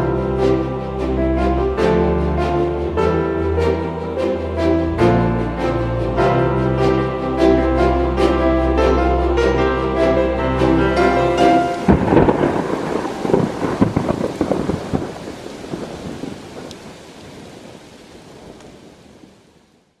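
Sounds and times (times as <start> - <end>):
steady rain: 0.0 - 20.0
thunder rumbling: 9.8 - 19.5.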